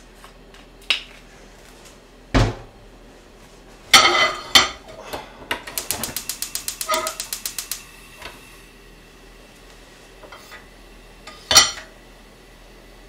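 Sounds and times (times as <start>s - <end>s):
stove igniter clicking: 5.5s - 8.4s.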